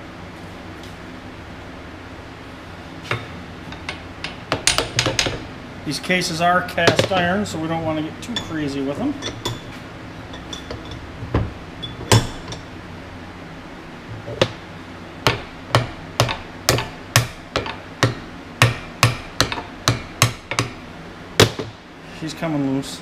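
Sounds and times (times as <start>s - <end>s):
hammer tapping cast iron: 3.1s - 5.4s, 6.8s - 7.4s, 9.2s - 12.7s, 15.2s - 20.8s.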